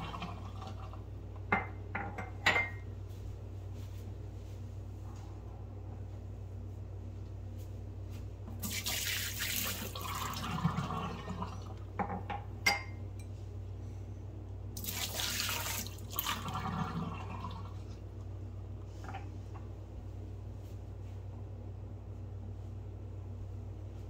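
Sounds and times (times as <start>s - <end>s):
water splashing into sink: 8.6s - 11.8s, 14.8s - 17.8s.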